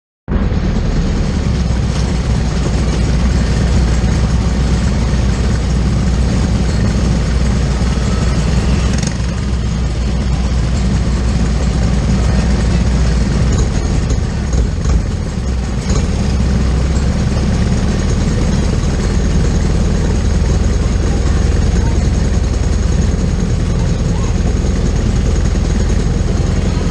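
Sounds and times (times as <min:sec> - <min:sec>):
kart engines idling: 0:00.3 - 0:26.9.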